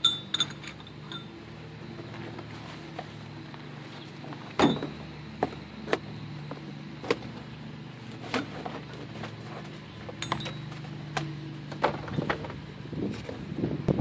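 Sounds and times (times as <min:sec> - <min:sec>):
metal pieces knocking and clinking: 0:00.0 - 0:01.3
steady low hum: 0:00.0 - 0:14.0.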